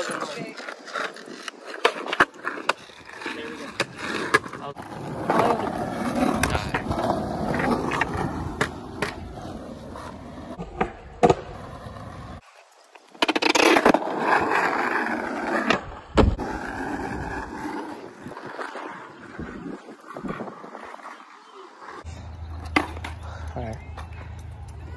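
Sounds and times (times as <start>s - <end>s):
skateboard clacking on pavement: 0.0s - 12.0s
skateboard wheels rolling on asphalt: 0.0s - 24.9s.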